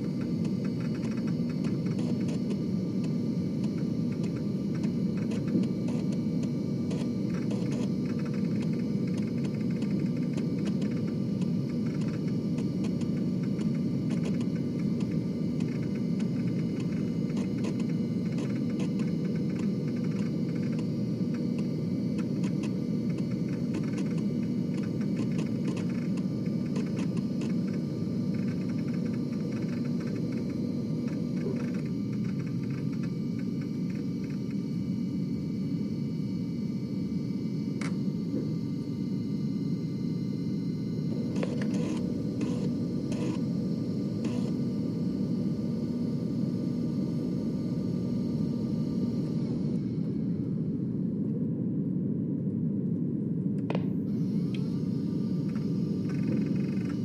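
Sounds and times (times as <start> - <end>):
small irregular clicks: 0.0 - 34.6
floppy disk drive whirring: 0.0 - 57.0.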